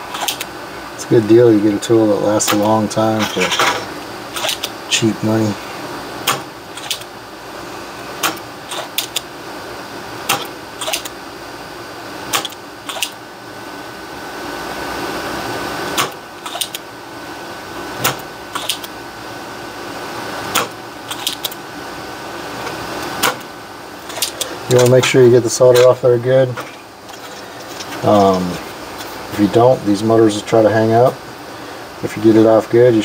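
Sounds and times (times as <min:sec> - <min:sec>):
faint hum: 0:00.0 - 0:33.0.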